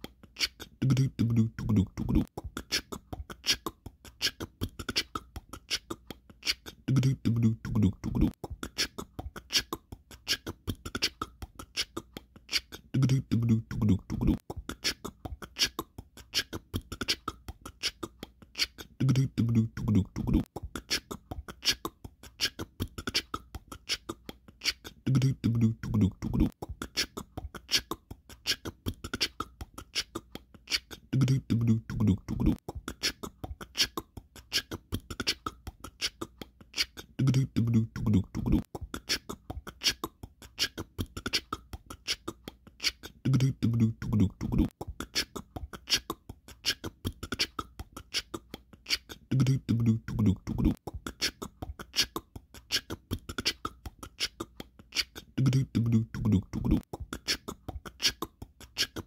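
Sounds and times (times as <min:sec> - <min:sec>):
beatbox-style beat: 0:00.0 - 0:59.0
low vocal phrase: 0:00.6 - 0:02.9, 0:06.7 - 0:08.4, 0:12.6 - 0:15.0, 0:18.8 - 0:20.9, 0:24.9 - 0:26.6, 0:31.0 - 0:32.6, 0:37.1 - 0:38.7, 0:43.1 - 0:44.8, 0:49.2 - 0:50.8, 0:55.2 - 0:57.4.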